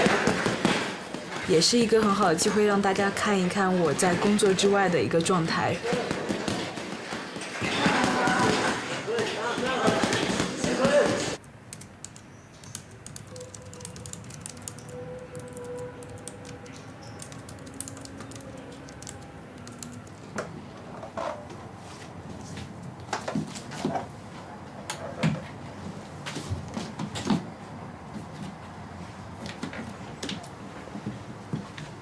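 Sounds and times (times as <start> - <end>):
laptop keyboard typing: 4.1 - 20.3.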